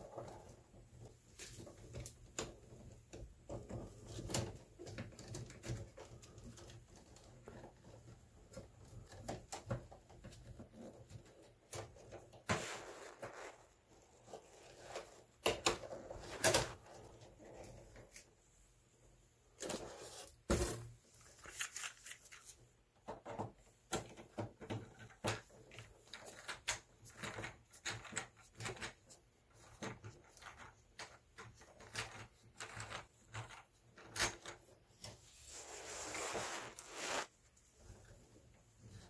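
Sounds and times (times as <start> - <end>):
scraping rub: 35.2 - 37.4.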